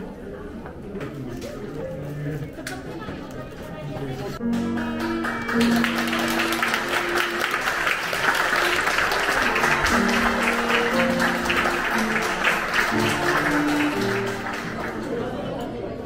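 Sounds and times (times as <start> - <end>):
crowd applauding: 4.4 - 16.0.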